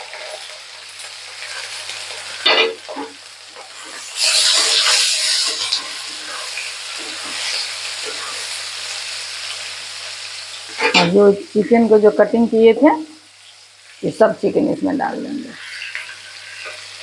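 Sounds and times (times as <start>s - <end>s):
onions sizzling in hot oil: 0.0s - 17.0s
metal spatula scraping a pan: 1.4s - 8.6s, 10.7s - 11.2s, 15.5s - 17.0s.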